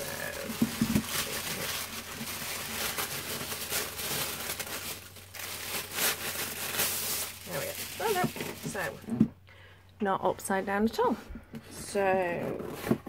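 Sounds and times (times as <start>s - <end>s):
tissue paper rustling: 0.0s - 9.1s.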